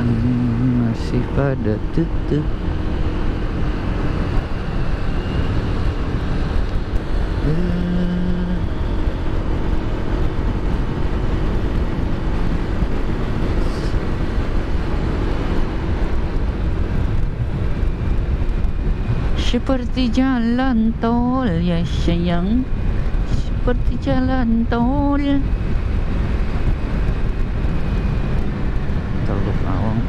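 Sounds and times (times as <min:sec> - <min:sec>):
scooter engine hum: 0:00.0 - 0:30.0
wind rushing over microphone: 0:00.0 - 0:30.0
short low tone: 0:07.4 - 0:09.0.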